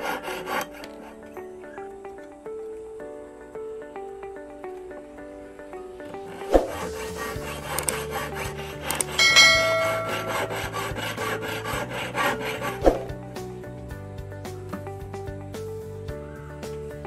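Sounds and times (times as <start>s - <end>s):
saw and file rasping: 0.0s - 1.5s, 6.1s - 13.2s
bright metallic ring: 9.2s - 10.9s.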